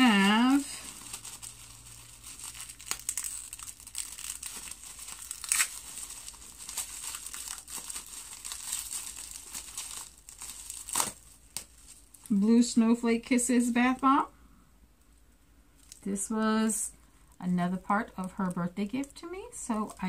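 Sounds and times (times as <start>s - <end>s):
packaging crinkling and rustling: 0.0s - 12.7s, 17.3s - 20.0s.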